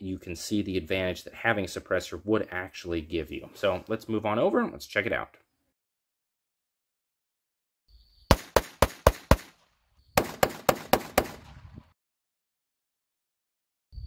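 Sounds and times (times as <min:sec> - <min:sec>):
pistol shots: 0:08.3 - 0:09.6, 0:10.2 - 0:11.6.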